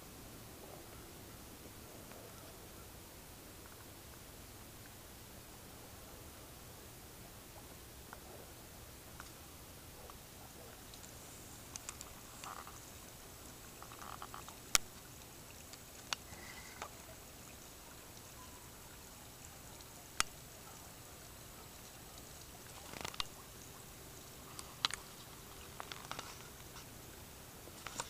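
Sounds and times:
water trickling into pond: 0.1s - 28.0s
sharp clicks: 22.7s - 23.4s.

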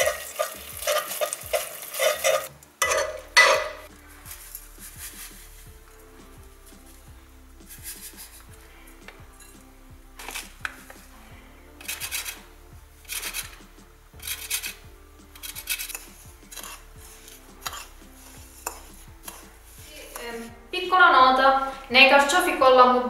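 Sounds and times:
metal spoon scraping plate: 0.0s - 5.4s, 10.2s - 10.6s, 11.8s - 12.4s, 13.0s - 13.6s, 14.2s - 20.4s
lemon rubbed on metal grater: 4.3s - 5.6s, 7.6s - 8.4s, 11.8s - 12.4s, 13.1s - 13.6s, 15.4s - 20.5s.

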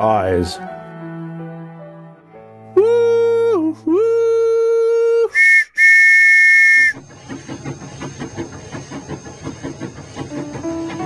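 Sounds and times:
steam locomotive whistle: 5.3s - 7.0s.

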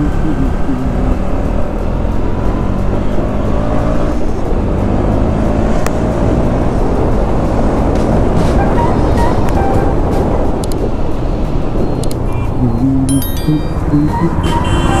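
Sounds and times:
motorcycle engine running: 0.0s - 10.2s
wind rush on microphone: 4.0s - 13.1s.

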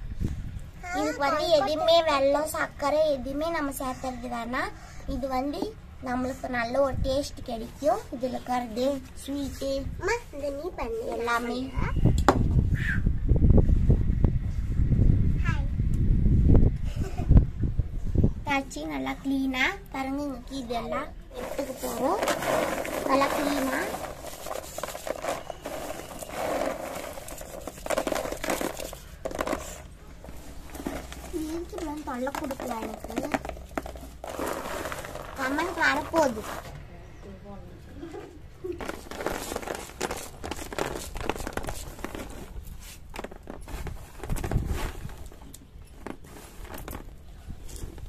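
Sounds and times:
peanuts rustling in woven tray: 21.3s - 36.8s, 38.8s - 48.0s.

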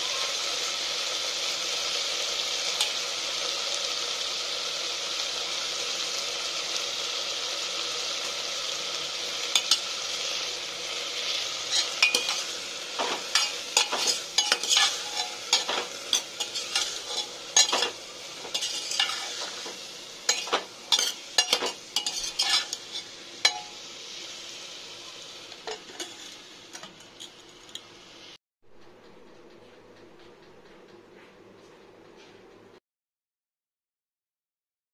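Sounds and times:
vegetables sizzling in a pot: 0.0s - 28.4s
steel ladle scraping a pot: 11.2s - 23.7s, 25.7s - 27.8s.

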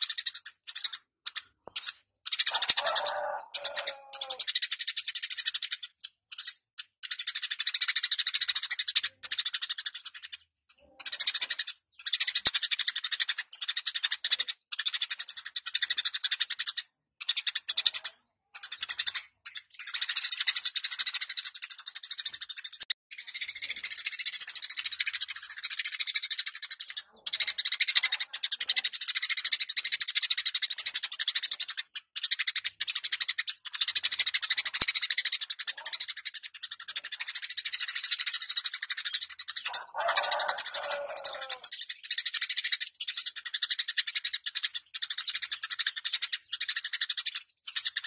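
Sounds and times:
sparrow chattering and chirping: 0.0s - 48.0s
longer low-pitched bird call: 2.5s - 4.5s, 39.6s - 41.8s.

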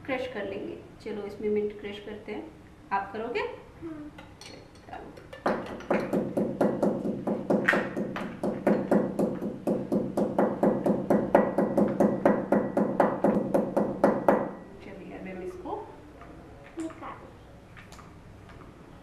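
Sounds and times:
pestle pounding in mortar: 5.4s - 14.5s.

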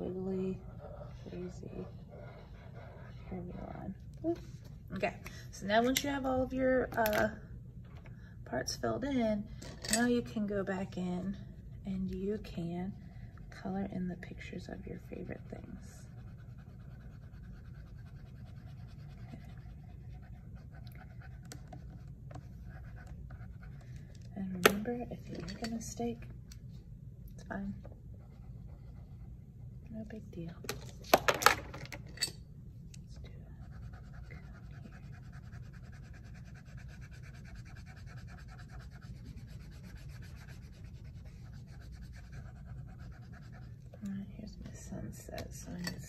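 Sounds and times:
marker rubbing on paper: 0.0s - 4.5s, 13.6s - 23.8s, 33.6s - 43.9s
steady low hum: 0.0s - 46.0s.

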